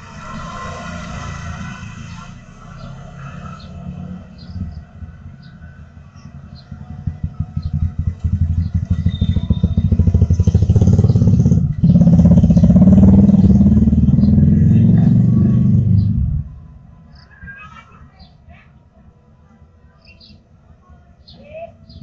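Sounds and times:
motorcycle engine: 0.0s - 16.9s.

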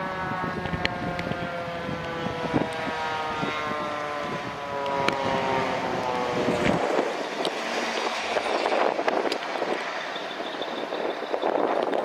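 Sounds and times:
fire engine siren wailing: 0.0s - 12.0s.

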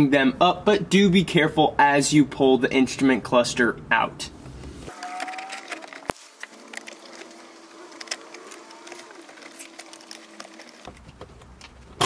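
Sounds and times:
low rumbling of handling: 4.4s - 12.0s.

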